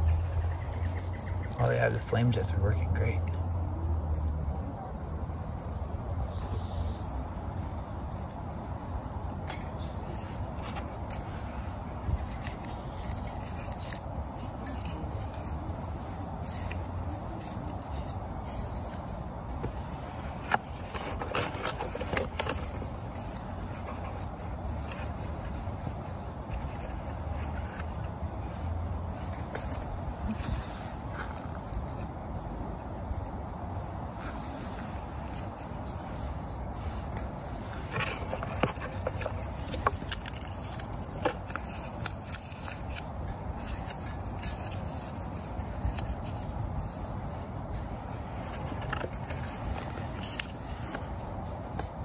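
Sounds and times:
cardboard burning crackles: 0:00.0 - 0:02.4
cardboard rustling: 0:19.6 - 0:28.2, 0:34.2 - 0:52.0.

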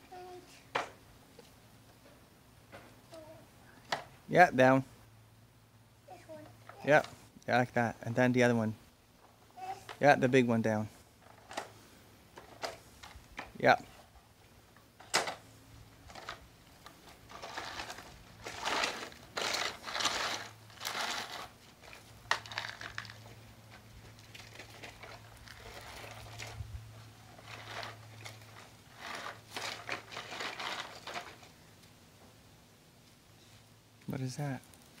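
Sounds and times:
gravel crunching and scraping: 0:16.0 - 0:31.6.

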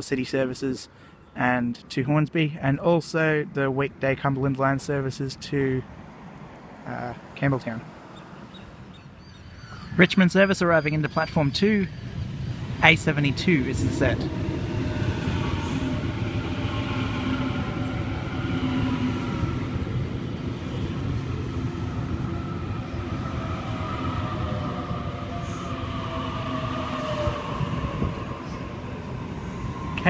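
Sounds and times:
train wheels rumbling: 0:08.5 - 0:30.0.

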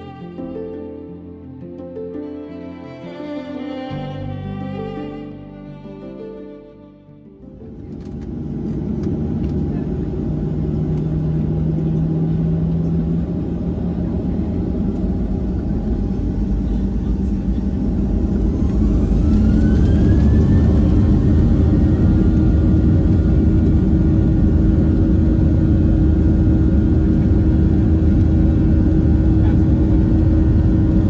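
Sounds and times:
rising engine whine: 0:02.8 - 0:31.0
jet engines spooling up: 0:07.9 - 0:31.0.

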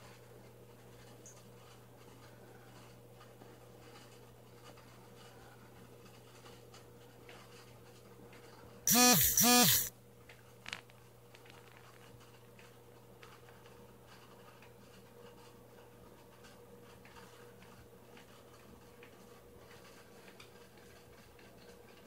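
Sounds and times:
faint steady hum: 0:08.9 - 0:13.6.

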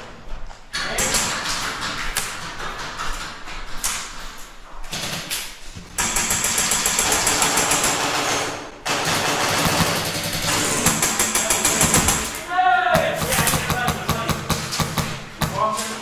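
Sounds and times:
airsoft guns firing bursts: 0:06.0 - 0:15.8.

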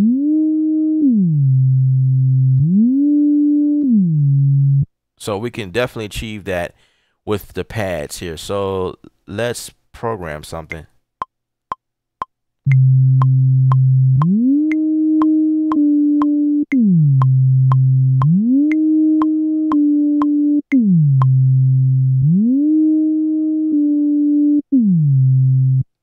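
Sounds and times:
synth bass sliding between notes: 0:00.0 - 0:04.9, 0:12.7 - 0:25.9.

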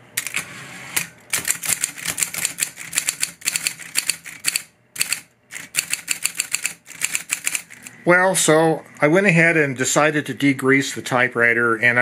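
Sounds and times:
electric typewriter typing: 0:00.2 - 0:07.9.

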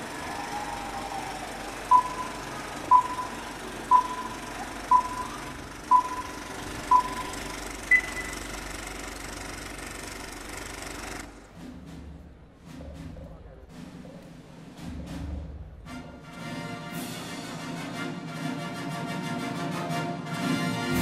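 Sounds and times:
film projector clattering: 0:01.4 - 0:11.4
longer higher beep: 0:01.9 - 0:08.4
short countdown beeps: 0:01.9 - 0:08.5.

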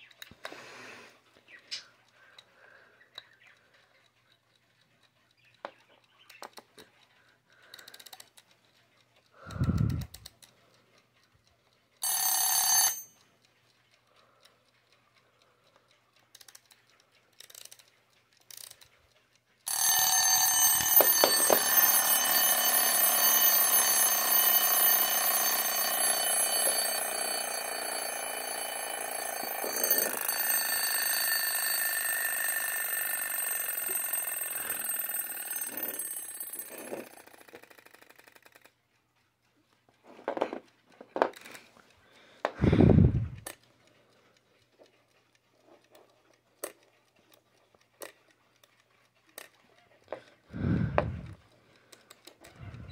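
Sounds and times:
mechanical alarm bell ringing: 0:12.0 - 0:13.4, 0:19.6 - 0:38.7
alarm clock knob clicks: 0:19.7 - 0:38.8.

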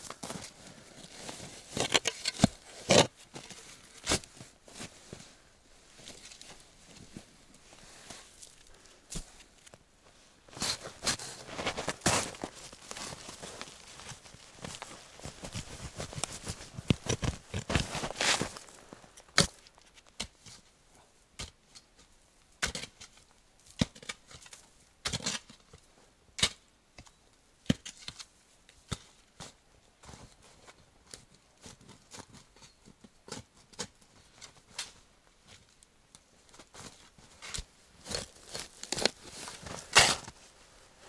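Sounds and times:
spade chopping frozen soil: 0:37.5 - 0:40.4.

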